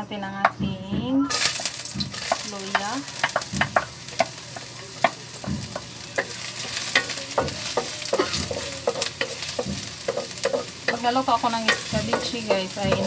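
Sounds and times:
wooden spatula knocking on wok: 0.4s - 13.0s
ginger sizzling in hot oil: 1.3s - 13.0s.

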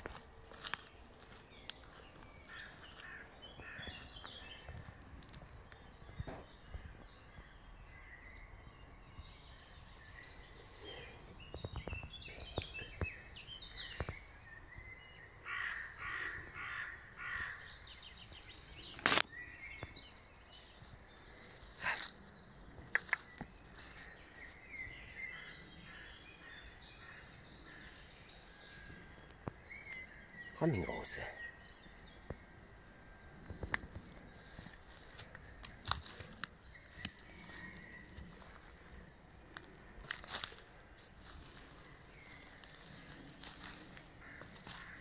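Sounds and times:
small birds chirping: 0.0s - 45.0s
crow cawing: 2.5s - 4.0s, 15.4s - 17.6s, 44.2s - 45.0s.

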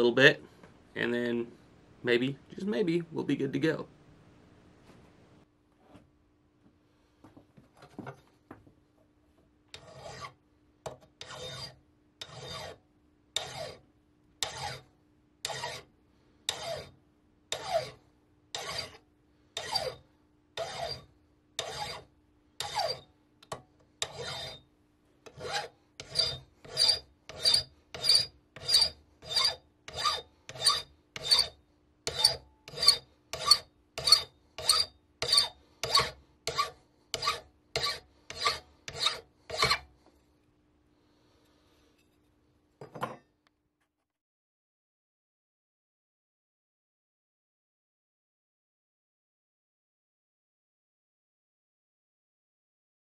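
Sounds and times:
hand file rasping on metal: 9.8s - 10.4s, 11.1s - 12.8s, 13.4s - 13.8s, 14.4s - 15.9s, 16.5s - 19.0s, 19.6s - 20.0s, 20.6s - 23.0s, 24.0s - 24.6s, 25.3s - 39.9s.

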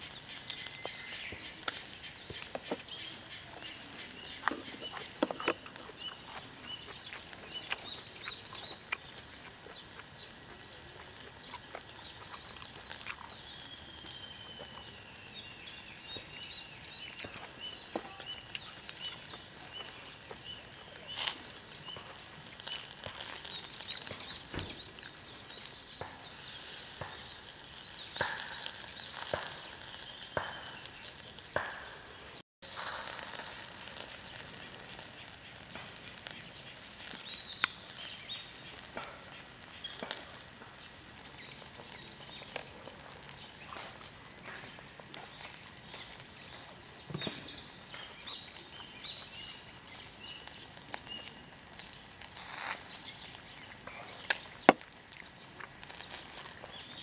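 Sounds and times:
birds trilling: 0.0s - 32.4s
outdoor background noise: 0.0s - 57.0s.

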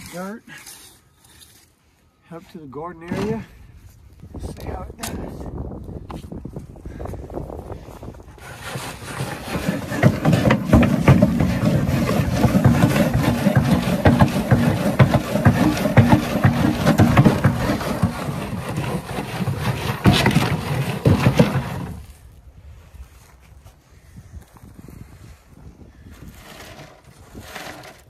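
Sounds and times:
dirt rattling on sifter screen: 8.4s - 22.2s, 26.4s - 28.0s
box knocking against loader bucket: 9.6s - 18.8s.

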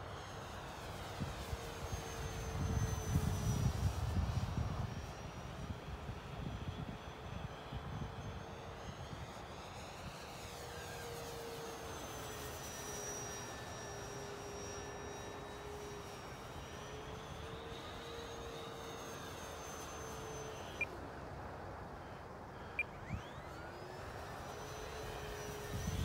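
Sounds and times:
electric motor and propeller whining: 0.0s - 26.0s
wind noise on microphone: 2.4s - 9.3s, 25.5s - 26.0s.

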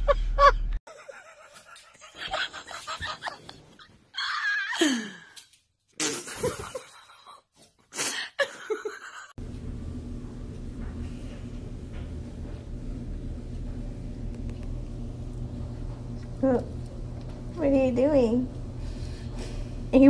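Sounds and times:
person laughing: 0.0s - 5.3s, 6.0s - 9.3s.

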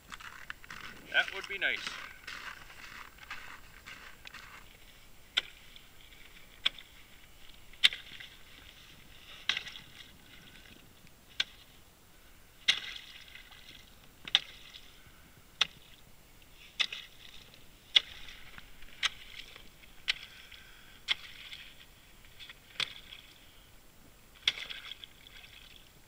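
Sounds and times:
ice crackling: 0.0s - 11.7s.

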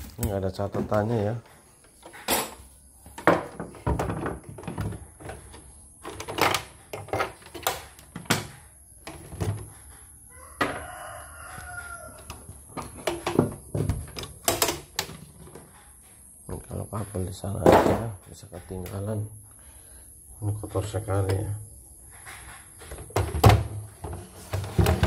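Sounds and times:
knocks and plastic clatter: 0.1s - 9.9s, 12.2s - 15.8s, 17.6s - 18.3s, 22.2s - 25.0s
rooster crowing: 10.2s - 12.6s.

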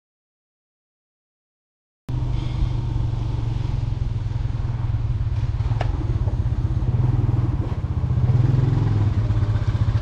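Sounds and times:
motorcycle engine running: 2.1s - 10.0s.

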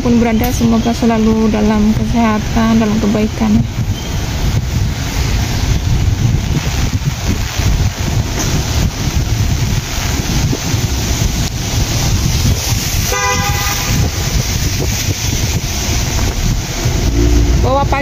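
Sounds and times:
wind rumbling on microphone: 0.0s - 18.0s
vehicle horn toot: 13.1s - 14.4s.

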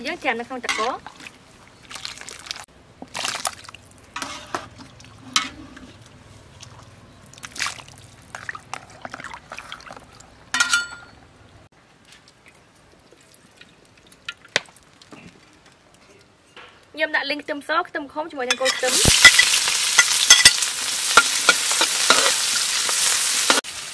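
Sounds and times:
water splashing and sloshing: 0.6s - 10.8s.

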